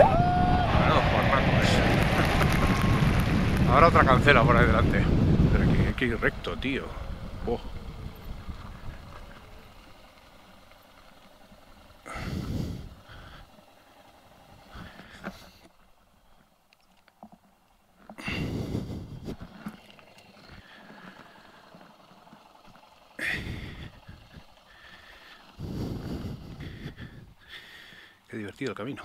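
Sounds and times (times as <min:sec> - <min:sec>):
loud rushes of noise: 0:00.0 - 0:09.4
faint motorcycle engine: 0:00.0 - 0:29.0.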